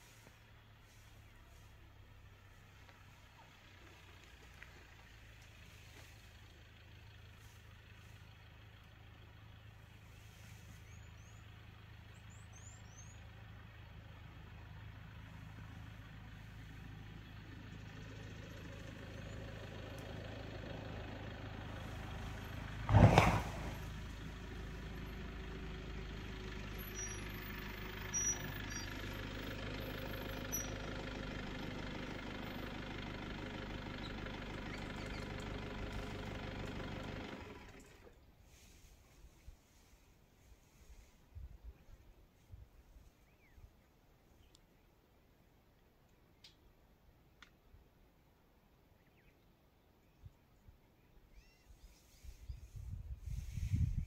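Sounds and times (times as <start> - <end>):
vehicle engine idling: 0.0 - 54.0
loud thump: 22.9 - 23.8.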